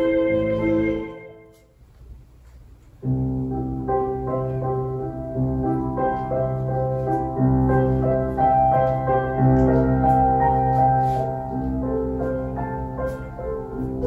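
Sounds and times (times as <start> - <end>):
instrumental music with bass line: 0.0 - 1.6.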